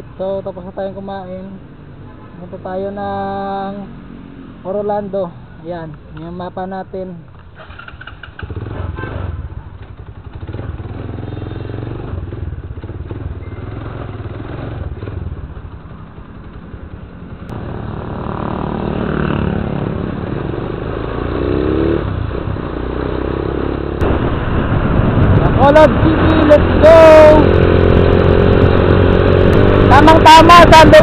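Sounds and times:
motorcycle engine accelerating: 7.6s - 31.0s.

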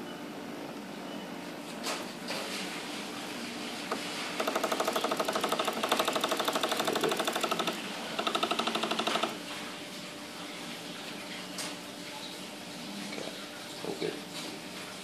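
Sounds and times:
fast mechanical rattle: 3.9s - 9.4s.

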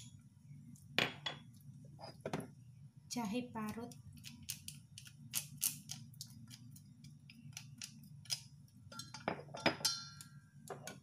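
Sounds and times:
metal bowl ringing: 8.9s - 10.4s.

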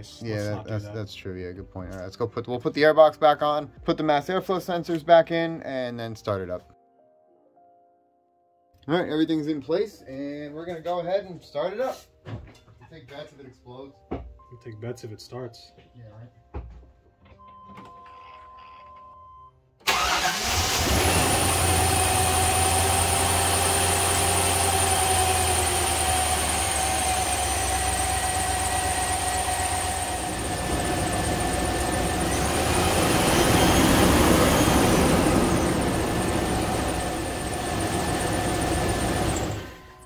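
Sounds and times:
car engine starting and idling: 19.8s - 40.0s
belt squealing: 30.7s - 36.3s.

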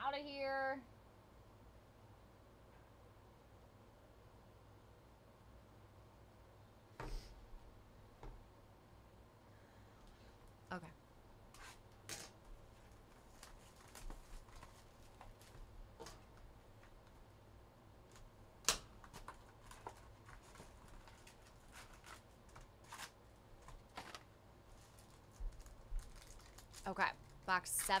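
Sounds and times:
card packaging rustling and clicking: 12.0s - 16.5s, 19.0s - 28.0s.

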